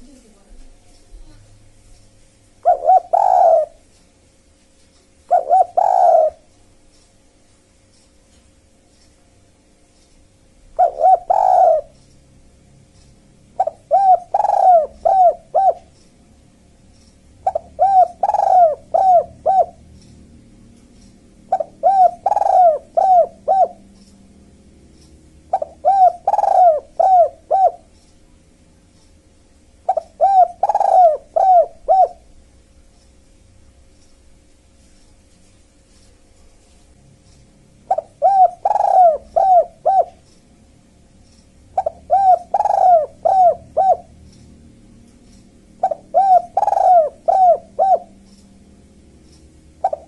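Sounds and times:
dove cooing: 2.6s - 3.8s, 5.3s - 6.5s, 10.8s - 12.0s, 13.6s - 15.9s, 17.4s - 19.9s, 21.4s - 24.0s, 25.5s - 27.9s, 29.8s - 32.3s, 37.9s - 40.2s, 41.8s - 44.2s, 45.7s - 48.4s, 49.8s - 50.0s.

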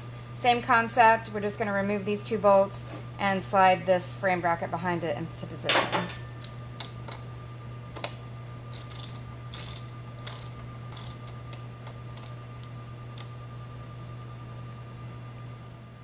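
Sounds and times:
steady low hum: 0.0s - 16.0s
ratchet wrench clicking: 8.7s - 11.3s.

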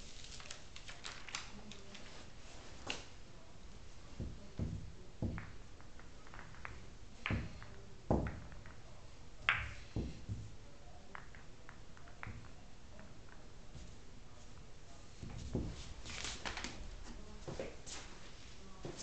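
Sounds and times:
pool balls clicking: 4.0s - 17.0s.

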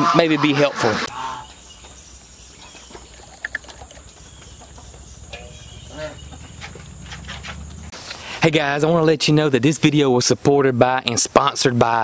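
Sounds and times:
high chirps: 0.0s - 7.3s
insect drone: 1.1s - 8.2s.

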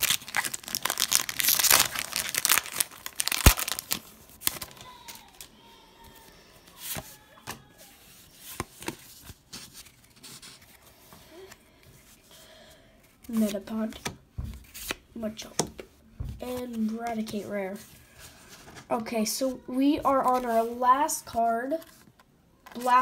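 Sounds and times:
foil wrapper tearing open: 0.0s - 5.4s
cards rustling and tapping: 0.0s - 12.1s, 13.1s - 17.4s.

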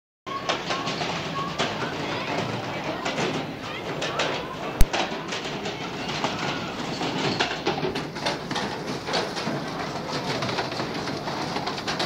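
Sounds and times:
crowd murmur: 0.3s - 12.0s
rapid game clicks and clacks: 0.3s - 12.0s.

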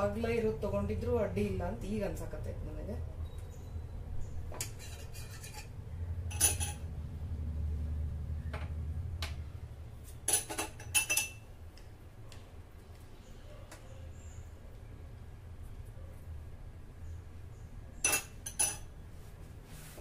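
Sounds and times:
low steady hum: 0.0s - 20.0s
spoon clinking on plate: 6.3s - 6.8s, 10.3s - 11.4s, 18.0s - 18.9s.

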